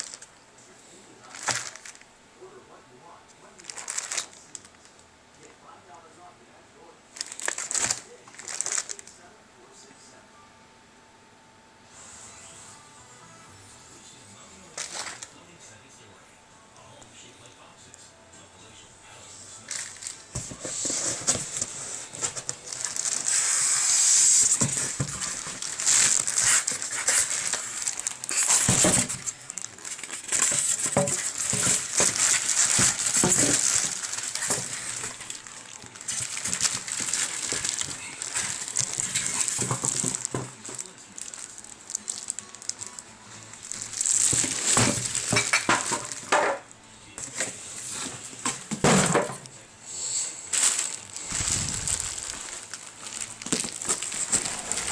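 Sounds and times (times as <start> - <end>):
plastic bag crinkling: 0.0 - 0.3, 1.2 - 2.0, 3.5 - 5.0, 7.1 - 9.1, 19.6 - 46.4, 50.5 - 54.9.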